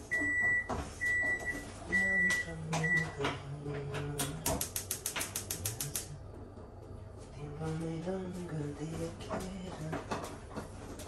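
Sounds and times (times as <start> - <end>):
gas stove igniter clicking: 4.2 - 6.1.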